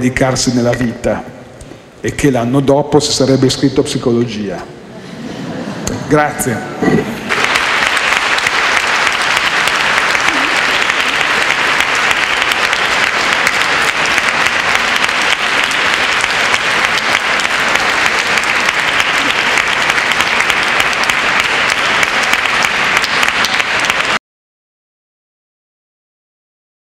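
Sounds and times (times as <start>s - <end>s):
audience applauding: 7.2s - 24.2s.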